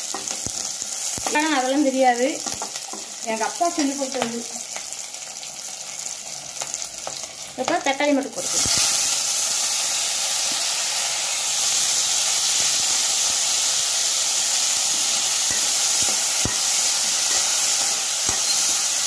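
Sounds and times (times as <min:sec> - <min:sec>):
vegetables sizzling in hot oil: 0:00.0 - 0:19.0
metal spatula knocking pan: 0:15.5 - 0:18.8.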